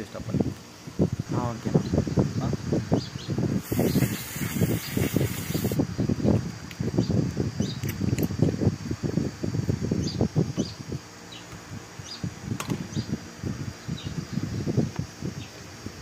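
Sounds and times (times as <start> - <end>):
small bird chirping: 2.9 - 6.4, 7.0 - 7.9, 10.0 - 12.3, 12.9 - 13.2, 13.8 - 14.8.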